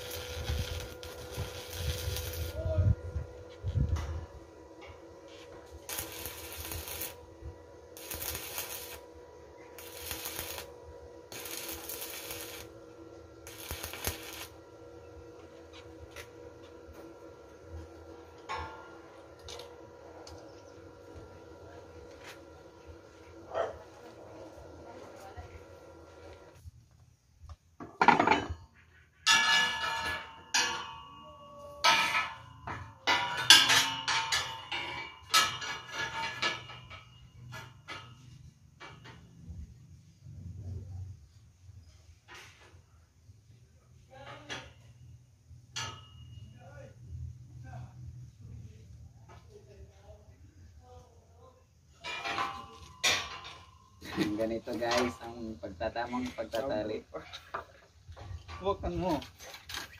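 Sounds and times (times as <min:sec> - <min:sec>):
welding arc crackling: 0:00.0 - 0:03.0, 0:05.6 - 0:18.4
steel rods clanking: 0:29.2 - 0:39.2, 0:52.0 - 0:55.8.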